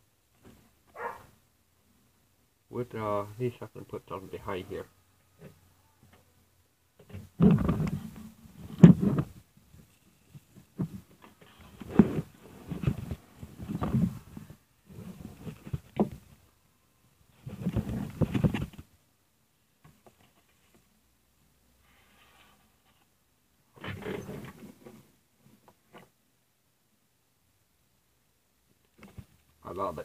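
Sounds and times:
muffled rubbing and shuffling: 7.0s - 16.6s, 17.2s - 19.0s, 19.8s - 21.1s, 21.7s - 26.2s.

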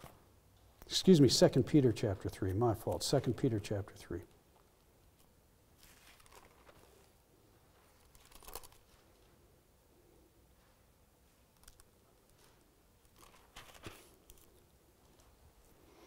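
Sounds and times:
soft rustles and clicks: 4.3s - 9.6s, 10.5s - 15.8s.

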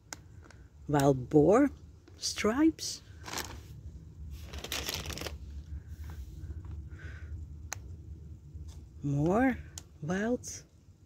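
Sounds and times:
plastic bags crinkling: 3.2s - 3.6s, 4.4s - 5.5s.

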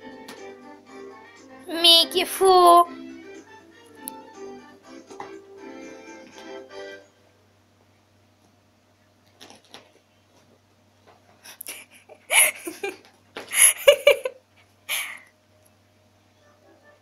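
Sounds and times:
person laughing: 11.6s - 15.2s.

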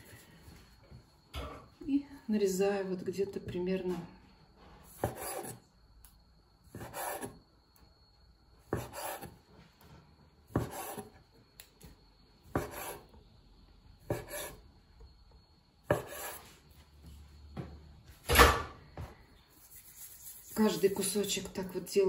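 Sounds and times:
knife scraping: 4.9s - 5.6s, 6.7s - 7.4s, 8.7s - 9.4s, 10.5s - 11.2s, 12.6s - 13.1s, 14.1s - 14.6s, 15.9s - 16.5s, 19.5s - 21.2s.

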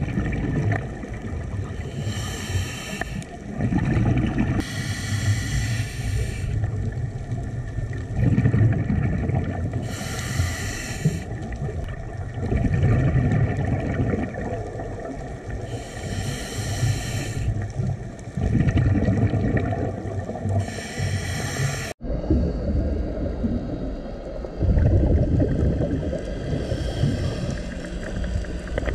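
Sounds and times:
bubbling exhaled air: 0.0s - 28.9s
underwater rumble: 0.0s - 28.9s
hissing regulator inhalation: 1.8s - 3.4s, 4.6s - 6.6s, 9.8s - 11.4s, 15.6s - 17.6s, 20.6s - 22.0s, 26.4s - 28.5s.

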